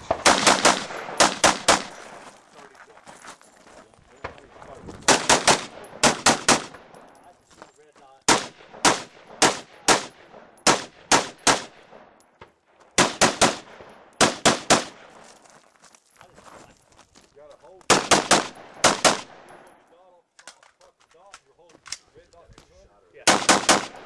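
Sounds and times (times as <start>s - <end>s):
rifle shots: 0.0s - 2.2s, 5.0s - 7.0s, 8.3s - 12.1s, 12.9s - 15.2s, 17.9s - 19.6s, 23.2s - 24.0s.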